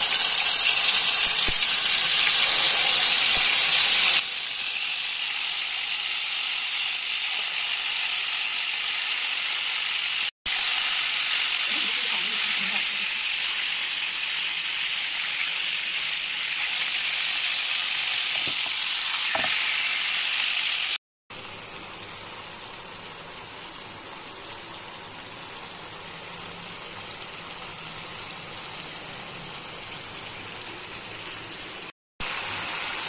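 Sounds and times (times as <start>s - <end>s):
chicken sizzling in hot oil: 0.0s - 33.0s.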